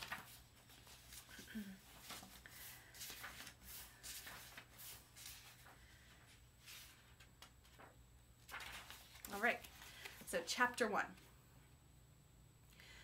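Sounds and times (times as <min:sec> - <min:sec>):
book pages turning: 0:00.0 - 0:05.8, 0:06.6 - 0:10.3.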